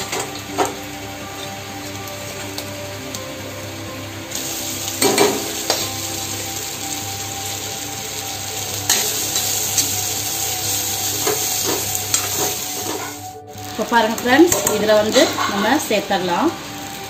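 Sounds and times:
coconut sizzling in oil: 0.0s - 17.0s
metal spatula scraping a pan: 8.9s - 13.3s, 14.5s - 15.9s.

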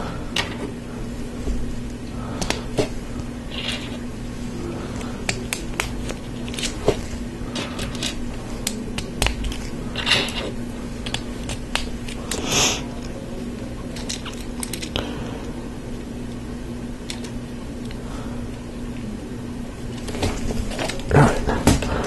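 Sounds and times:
faint steady hum: 0.0s - 22.0s
plastic pieces clicking: 7.6s - 12.4s, 14.0s - 15.0s.

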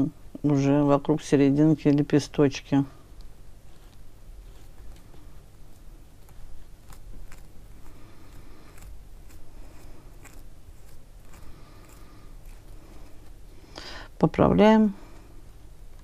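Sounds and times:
faint scraping: 2.9s - 14.0s.

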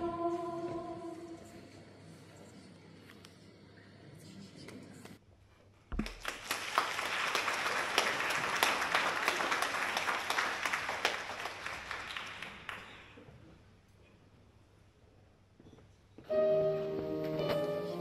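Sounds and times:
audience applauding: 6.0s - 13.2s.

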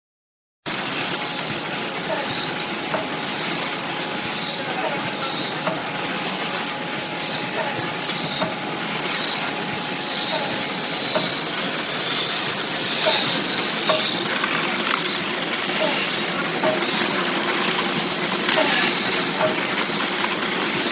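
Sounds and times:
packing machine hissing: 0.7s - 20.9s.

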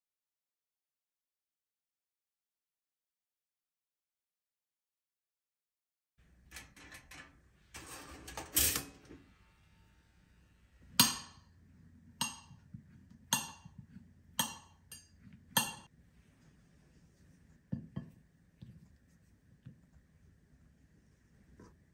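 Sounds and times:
knife tapping ceramic plate: 12.2s - 12.7s, 13.3s - 15.9s.

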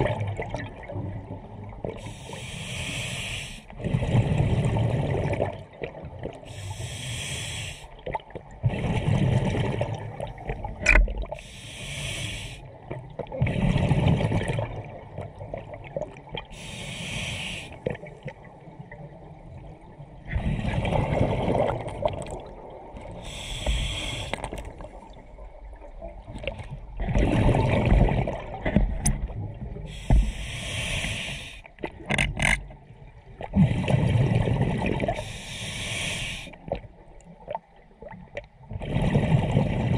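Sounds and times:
gurgling exhaled bubbles: 0.0s - 2.1s, 3.8s - 6.5s, 8.0s - 11.4s, 12.8s - 16.7s, 20.2s - 30.4s, 33.3s - 35.4s, 37.5s - 39.9s
regulator inhale hiss: 2.0s - 3.7s, 6.5s - 8.0s, 11.4s - 12.7s, 16.5s - 17.9s, 23.2s - 24.6s, 29.9s - 31.7s, 35.2s - 36.6s.

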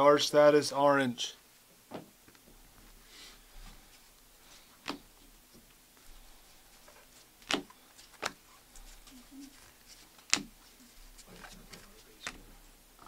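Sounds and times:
cards shuffling: 3.9s - 12.7s
cards tapping and clicking: 4.8s - 5.1s, 7.4s - 12.6s.

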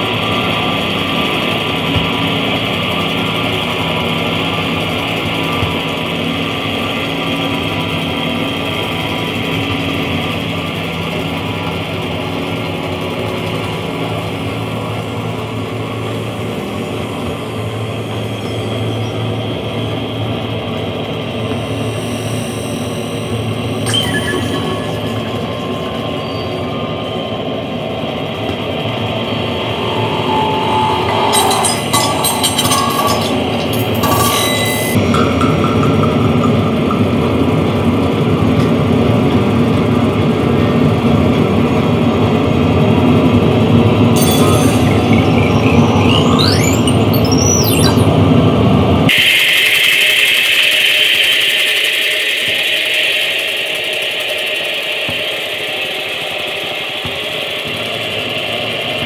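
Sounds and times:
droning background music: 0.0s - 40.2s, 42.7s - 48.2s
clicking glitchy high noise: 21.4s - 26.7s, 28.5s - 38.1s, 44.1s - 57.9s
held electronic tones: 21.6s - 26.7s, 28.8s - 37.4s, 44.1s - 48.5s.

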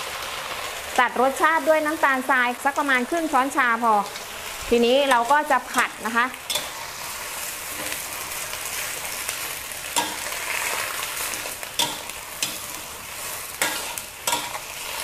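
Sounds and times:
cabbage sizzling in wok: 0.0s - 15.0s
spatula scraping and knocking pan: 9.9s - 15.0s.

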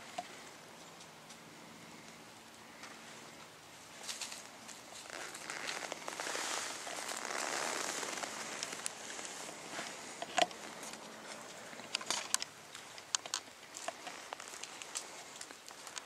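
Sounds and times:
dry leaves rustling and crackling: 3.9s - 12.3s.

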